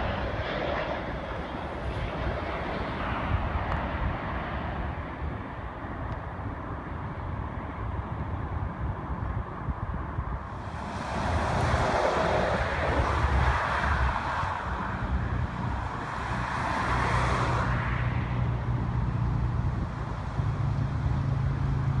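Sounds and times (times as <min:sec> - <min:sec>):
cars passing: 0:09.8 - 0:22.0.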